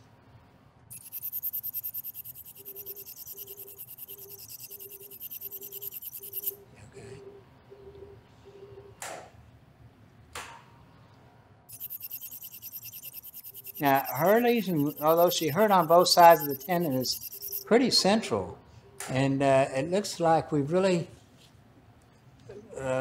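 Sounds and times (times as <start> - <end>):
short low electronic beeps: 0.9 - 6.6, 11.7 - 17.7.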